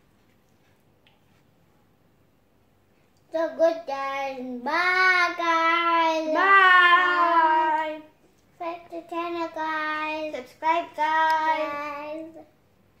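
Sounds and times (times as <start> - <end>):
girl singing held notes: 3.3 - 12.5.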